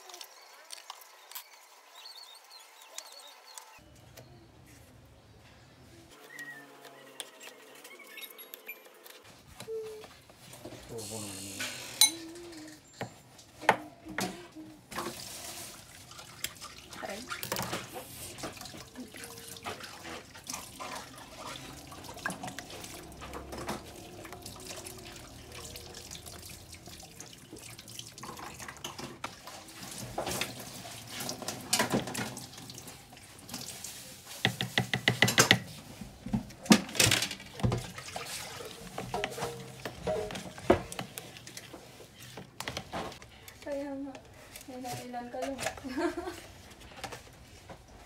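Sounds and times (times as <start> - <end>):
utensil knocking and stirring: 33.2 - 36.6, 37.5 - 43.2.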